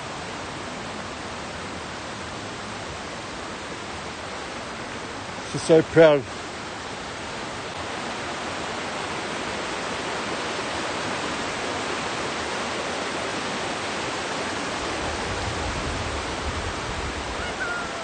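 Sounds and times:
fast-flowing water rushing: 0:00.0 - 0:18.0.

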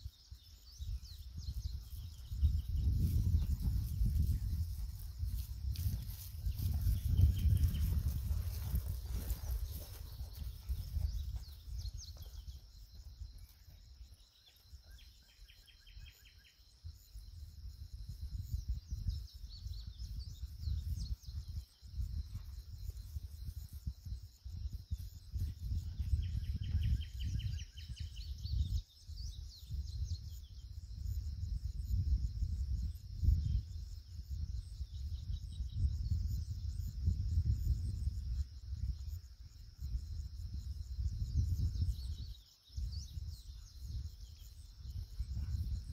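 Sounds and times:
insects droning: 0:00.0 - 0:45.9
wind rumble on microphone: 0:00.0 - 0:45.9
birds chirping and trilling: 0:40.8 - 0:45.9.

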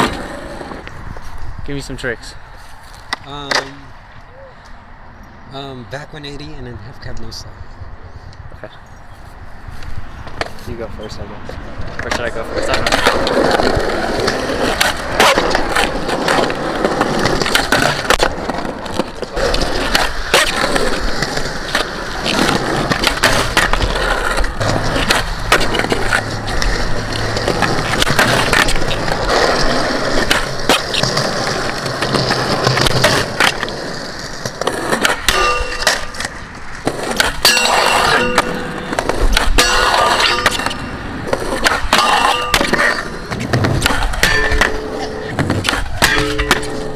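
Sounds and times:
skateboard wheels rolling on concrete: 0:00.0 - 0:46.9
skateboard clacks: 0:11.5 - 0:46.9.

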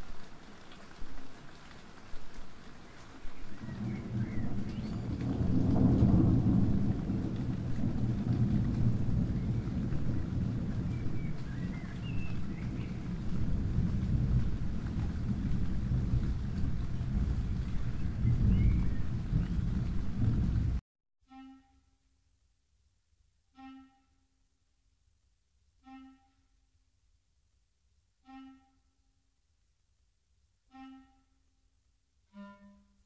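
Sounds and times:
steady rain: 0:00.0 - 0:20.8
thunder rumbling: 0:03.5 - 0:20.8.

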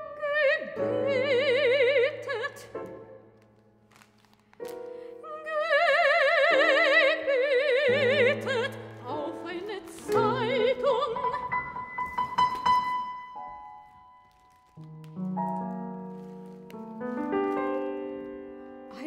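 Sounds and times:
soprano singing: 0:00.0 - 0:03.6, 0:04.6 - 0:13.6
piano chords: 0:00.0 - 0:19.0.

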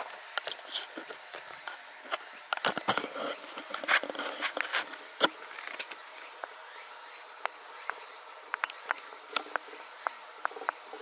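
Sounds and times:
faint high hiss: 0:00.0 - 0:11.0.

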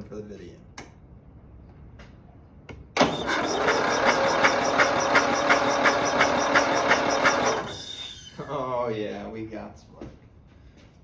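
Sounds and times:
electric starter cranking engine: 0:03.0 - 0:08.3.

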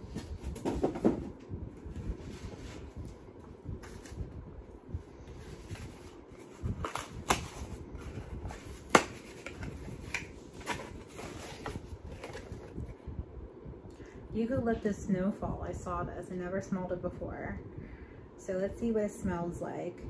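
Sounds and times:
packaging rustling: 0:05.2 - 0:12.9.

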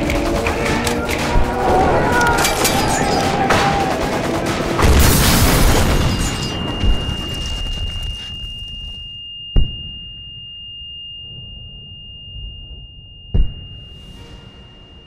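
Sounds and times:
film soundtrack music: 0:00.0 - 0:07.8, 0:11.2 - 0:15.0
gunfire: 0:00.0 - 0:08.3
explosions: 0:02.8 - 0:08.7
high-pitched ringing tone: 0:06.0 - 0:15.0.

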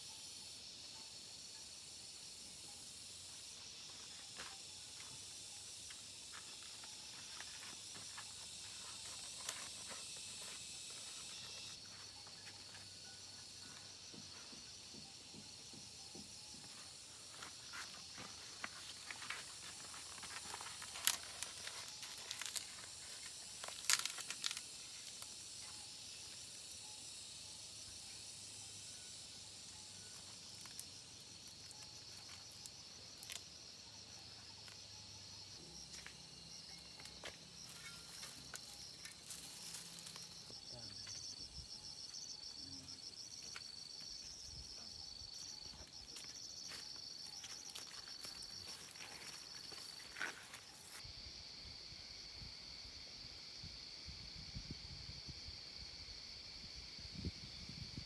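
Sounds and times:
high-pitched insect chorus: 0:00.0 - 0:58.0
leaf crinkling as it is folded: 0:19.0 - 0:25.3.

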